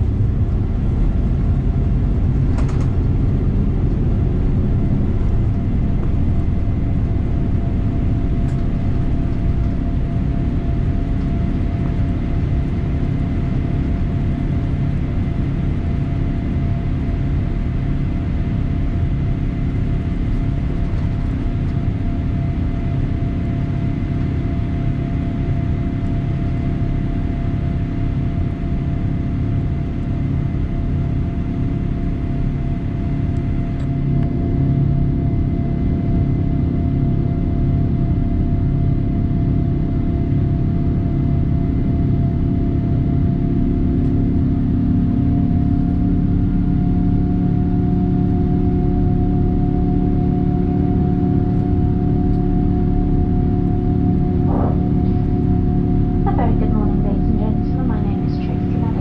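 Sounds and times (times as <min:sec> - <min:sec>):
jet engine rumble: 0:00.0 - 0:59.0
faint steady whine: 0:44.6 - 0:59.0.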